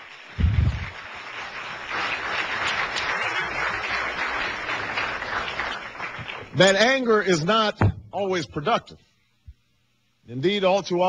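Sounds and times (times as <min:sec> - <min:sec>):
audience applauding: 0:00.0 - 0:06.6
low thump: 0:07.8 - 0:08.2.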